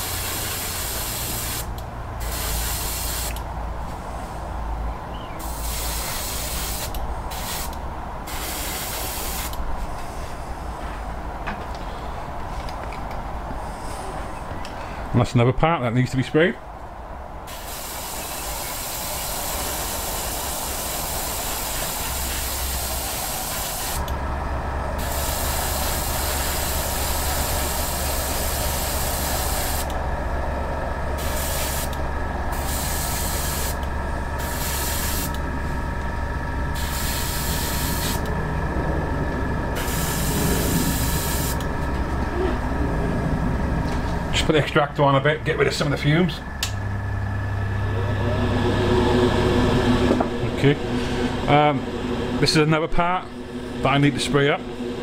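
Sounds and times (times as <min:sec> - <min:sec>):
airbrush hissing: 0:00.0 - 0:03.4, 0:05.4 - 0:09.6, 0:17.5 - 0:24.1, 0:25.0 - 0:29.9, 0:31.2 - 0:35.4, 0:36.7 - 0:38.3, 0:39.8 - 0:41.6
steady low hum: 0:00.0 - 0:55.0.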